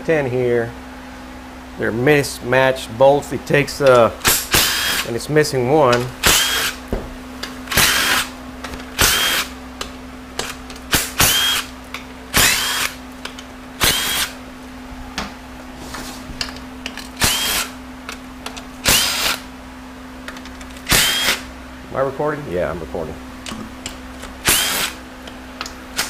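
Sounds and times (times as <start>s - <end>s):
steady low hum: 0.0s - 26.0s
power drill whining bursts: 4.2s - 5.1s, 6.2s - 6.8s, 7.7s - 8.3s, 8.9s - 9.5s, 10.4s - 11.7s, 12.3s - 13.0s, 13.8s - 14.4s, 17.2s - 17.8s, 18.8s - 19.5s, 20.8s - 21.5s, 24.4s - 25.0s.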